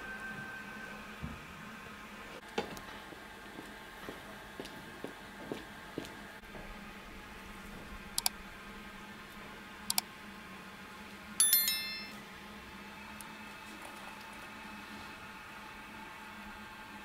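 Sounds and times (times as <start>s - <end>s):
faint steady hum: 6.6s - 17.0s
notification bell chime: 11.4s - 12.2s.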